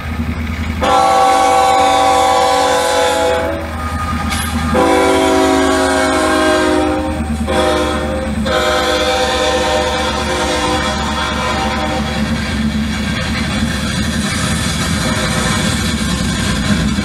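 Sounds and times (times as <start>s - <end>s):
low engine rumble: 0.0s - 17.0s
model locomotive horn blasts: 0.8s - 12.4s.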